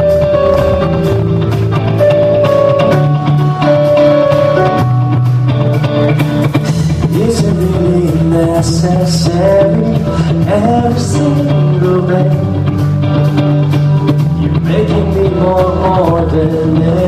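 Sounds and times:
instrumental accompaniment: 0.0s - 17.0s
man singing into a microphone: 6.7s - 12.9s, 14.5s - 17.0s.

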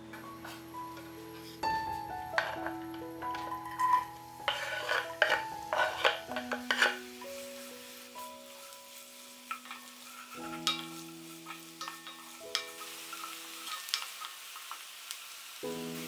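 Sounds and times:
soft background music: 0.0s - 14.0s, 15.6s - 16.0s
onions sizzling in oil: 0.0s - 16.0s
wooden spoon scraping a pot: 2.4s - 7.1s.

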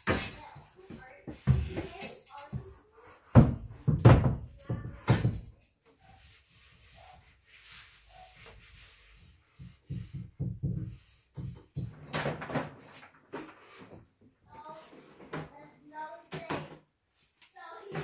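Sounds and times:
wooden shelving knocking on tiles: 0.9s - 5.5s, 9.5s - 12.8s
short dull thumps and knocks: 9.5s - 12.0s.

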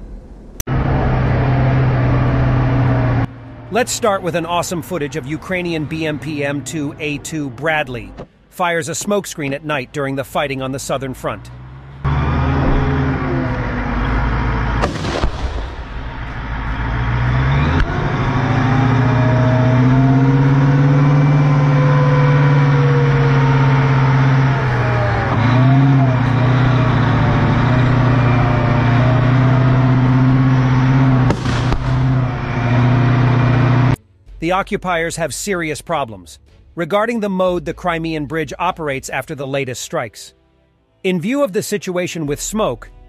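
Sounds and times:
diesel engine running: 0.3s - 8.5s, 9.8s - 34.2s
sharp bang: 14.8s - 16.4s, 31.3s - 32.5s.

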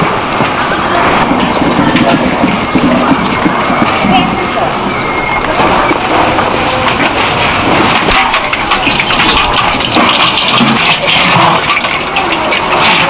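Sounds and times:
water splashing and pouring: 5.6s - 13.0s.

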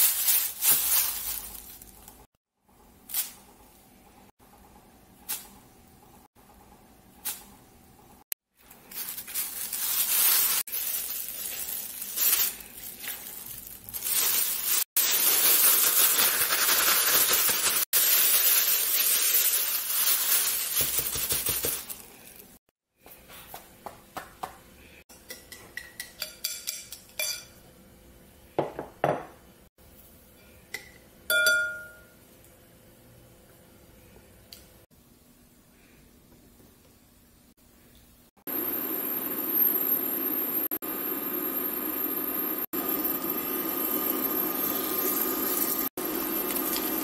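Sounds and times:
plastic bag rustling: 0.0s - 2.3s, 8.6s - 22.6s
ringing glass notes: 31.3s - 32.2s.

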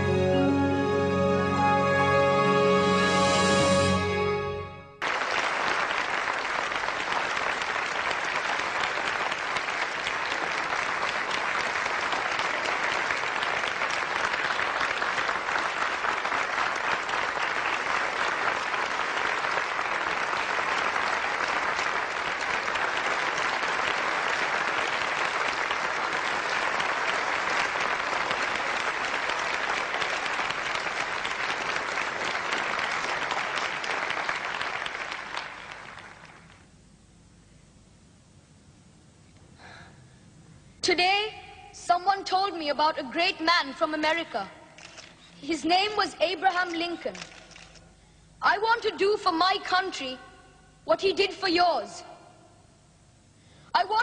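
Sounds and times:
audience applauding: 5.0s - 36.7s.

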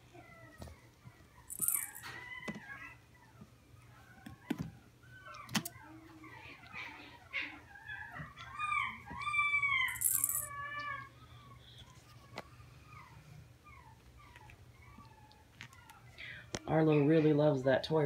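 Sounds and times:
puppies whining and yipping: 0.0s - 17.2s
toy ball bell jangling: 1.5s - 2.1s, 9.9s - 10.5s.

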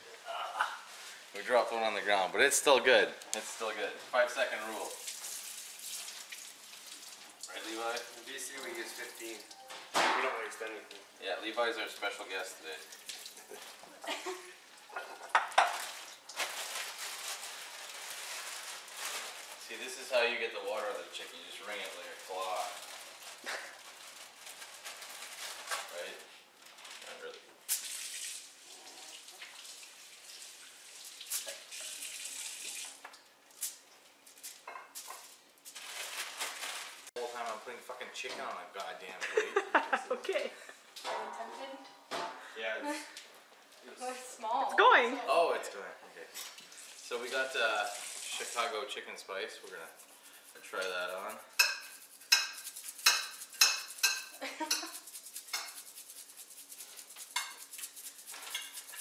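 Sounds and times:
glass and dishware clinking: 15.2s - 15.8s, 34.6s - 35.2s
tap water running into sink: 27.7s - 33.2s.

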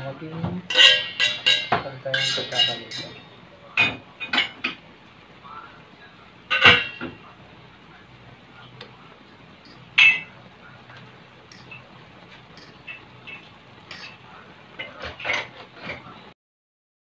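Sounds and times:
fork clinking and scraping in wok: 0.7s - 3.3s, 9.6s - 10.4s, 11.5s - 11.9s, 12.5s - 14.2s.

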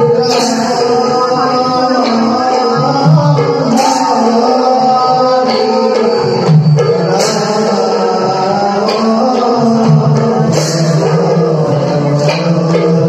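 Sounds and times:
group singing: 0.0s - 13.0s
hand cymbals crashing: 0.0s - 13.0s.

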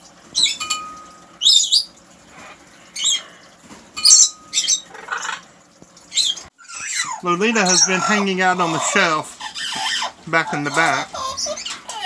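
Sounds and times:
parrot squawking: 1.4s - 3.3s, 4.0s - 5.5s, 6.1s - 12.0s.

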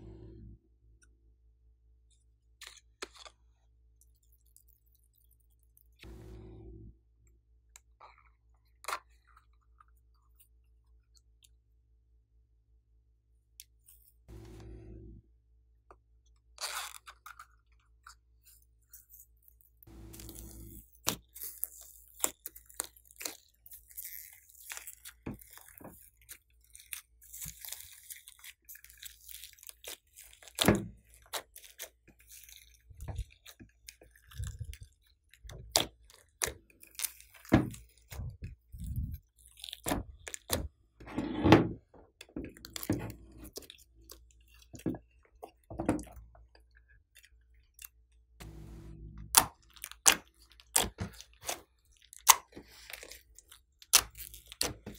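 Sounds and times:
slime clicking and crackling: 20.2s - 40.6s, 49.3s - 54.9s.

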